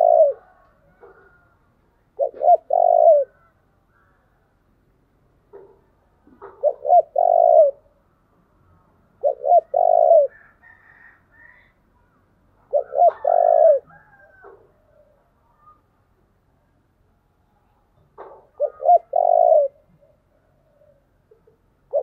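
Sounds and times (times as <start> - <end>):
dove cooing: 0.0 - 4.0, 5.5 - 8.0, 9.2 - 11.8, 12.6 - 15.9, 18.2 - 22.0.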